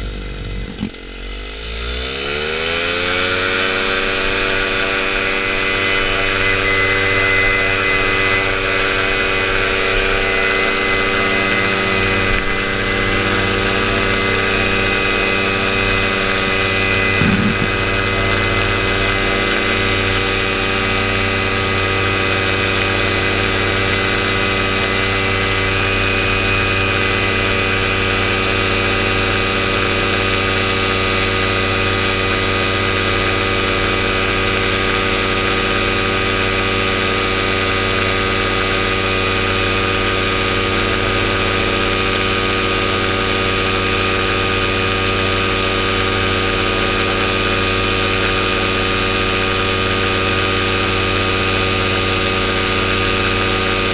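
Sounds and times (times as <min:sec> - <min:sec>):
paramotor engine and propeller: 0:00.0 - 0:53.9.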